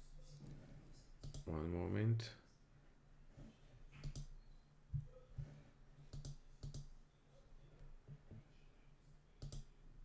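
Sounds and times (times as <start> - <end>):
computer mouse clicking: 1.2 - 1.5, 4.0 - 4.4, 6.1 - 6.9, 9.4 - 9.7.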